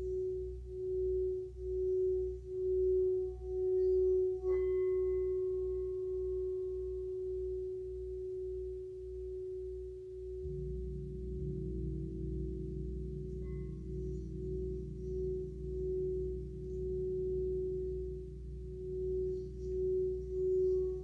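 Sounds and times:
gong low hum: 0:00.0 - 0:21.0
singing bowl tone: 0:00.0 - 0:21.0.

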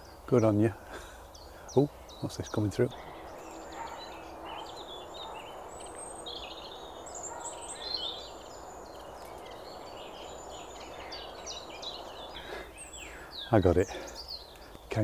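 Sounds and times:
songbirds singing: 0:00.0 - 0:15.0
steady background rush: 0:02.9 - 0:13.3.

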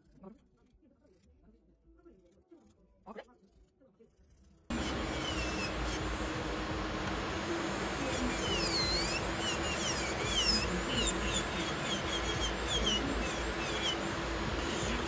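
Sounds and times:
electric nail drill humming: 0:04.7 - 0:15.0.

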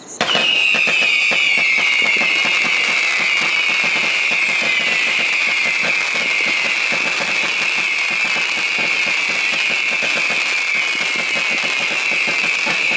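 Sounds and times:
fireworks popping and crackling: 0:00.2 - 0:12.9
high falling whistle: 0:00.2 - 0:12.9.

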